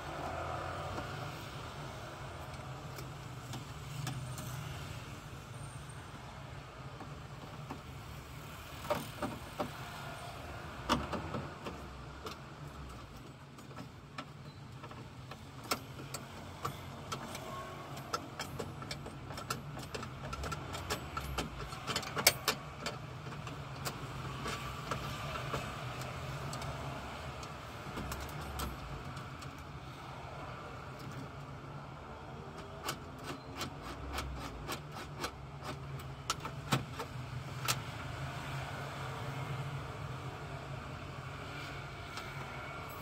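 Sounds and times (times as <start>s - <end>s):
clicks and knocks of metal rods: 10.8s - 29.7s, 32.6s - 37.9s.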